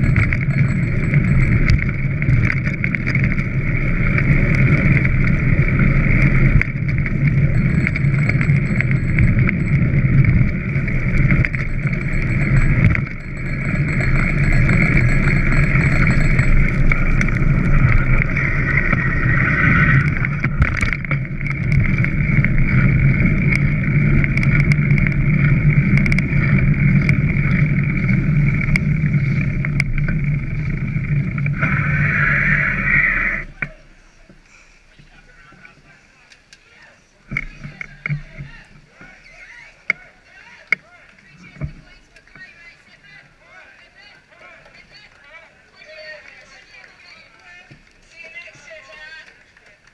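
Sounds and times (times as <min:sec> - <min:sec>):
bicycle tyres on wet road: 0:00.0 - 0:14.4, 0:16.5 - 0:33.6.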